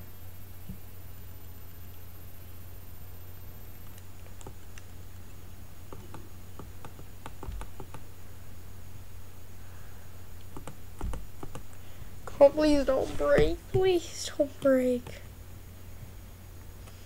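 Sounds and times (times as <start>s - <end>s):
steady low hum: 0.0s - 17.0s
keyboard typing clicks: 5.9s - 8.0s.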